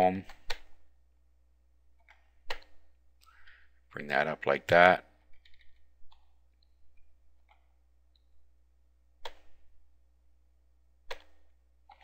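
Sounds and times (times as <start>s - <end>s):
computer keys clicking: 5.3s - 6.3s.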